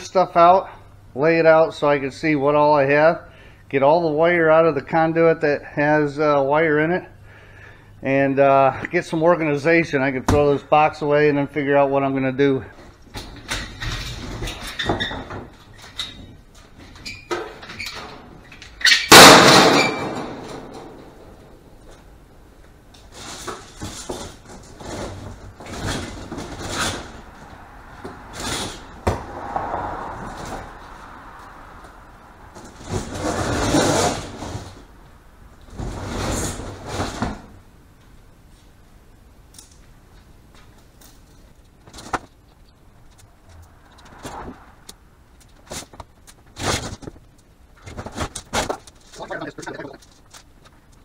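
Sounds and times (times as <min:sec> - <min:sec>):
scrap metal crashing: 0:17.5 - 0:21.6, 0:23.1 - 0:31.0, 0:32.5 - 0:34.9
metal scraping and clattering: 0:23.0 - 0:29.0, 0:32.5 - 0:34.9.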